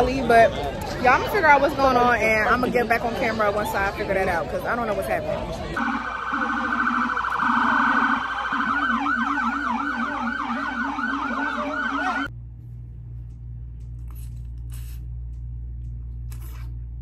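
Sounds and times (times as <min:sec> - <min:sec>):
emergency siren trill and yelp: 0:05.8 - 0:12.3
low steady hum: 0:12.2 - 0:17.0.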